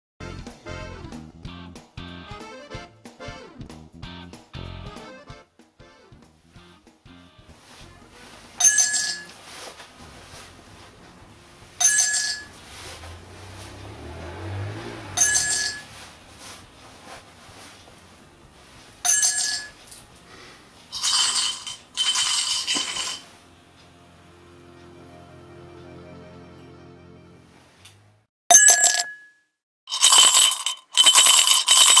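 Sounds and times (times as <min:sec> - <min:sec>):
coin clinks: 0:08.6 - 0:09.4, 0:11.8 - 0:12.5, 0:15.2 - 0:15.9, 0:19.0 - 0:19.8, 0:20.9 - 0:23.3, 0:28.5 - 0:29.3, 0:29.9 - 0:32.0
coins jingling together: 0:20.9 - 0:23.2, 0:29.9 - 0:32.0.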